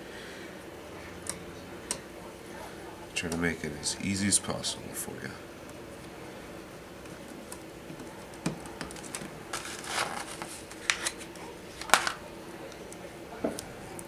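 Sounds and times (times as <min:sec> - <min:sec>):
papery rustle of vinyl sheet: 0:07.2 - 0:12.2.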